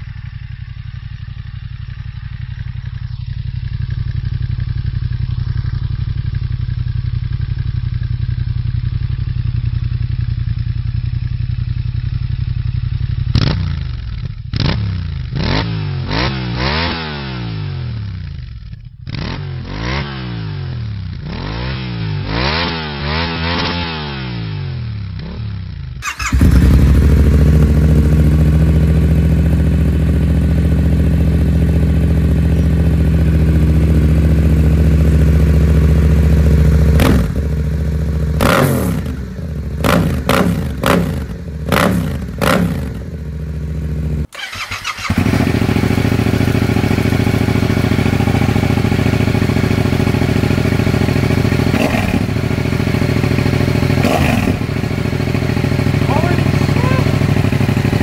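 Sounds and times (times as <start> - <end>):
motorcycle engine idling: 0.0 - 15.4, 24.8 - 58.0
motorcycle throttle blips: 26.0 - 58.0.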